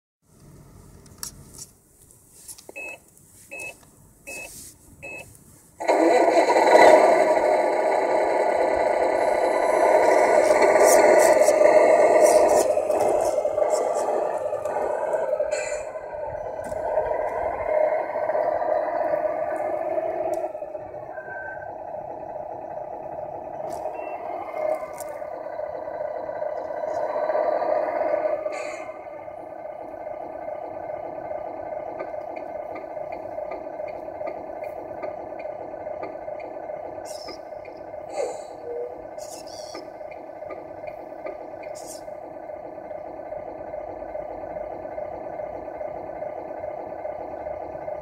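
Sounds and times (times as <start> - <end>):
simulated diesel truck engine: 0.2 - 48.0
short electronic beeps: 2.8 - 5.3, 21.1 - 21.7.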